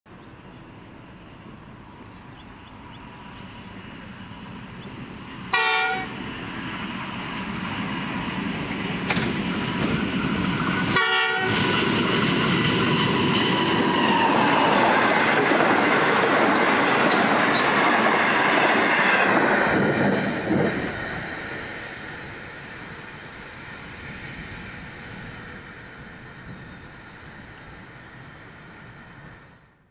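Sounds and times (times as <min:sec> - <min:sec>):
train engine and wheels on rails: 0:00.1 - 0:29.9
locomotive horn blasts: 0:05.5 - 0:06.2, 0:10.9 - 0:11.6.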